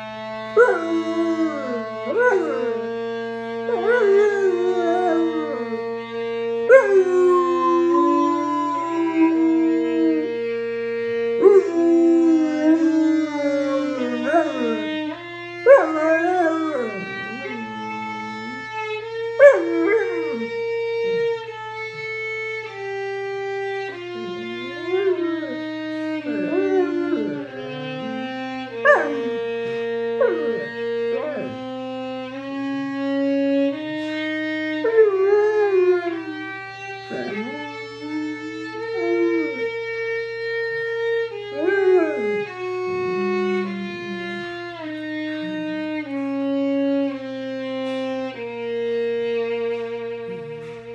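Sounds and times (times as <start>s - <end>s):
violin slow melody: 0.0s - 50.9s
dog howling and yipping: 0.5s - 6.0s, 6.6s - 10.4s, 11.4s - 21.5s, 24.0s - 31.8s, 34.8s - 40.2s, 41.3s - 44.6s.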